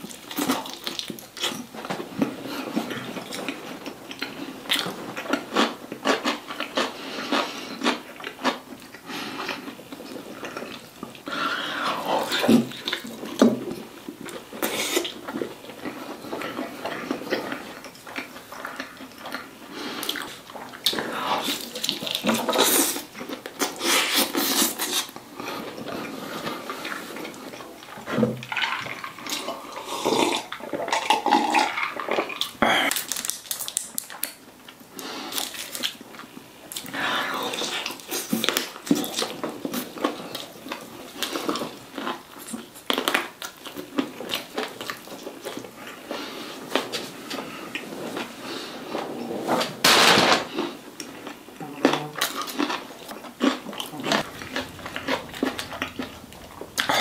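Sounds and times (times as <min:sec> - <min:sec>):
chewing fried chicken: 0:00.0 - 0:49.3, 0:50.5 - 0:57.0
crackles of crispy food: 0:12.0 - 0:48.8, 0:49.8 - 0:57.0.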